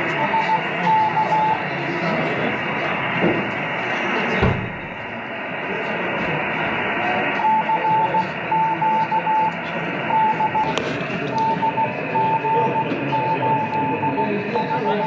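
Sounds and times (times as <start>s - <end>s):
morse code tone: 0.0s - 1.6s, 7.1s - 15.0s
radio hiss: 5.0s - 15.0s.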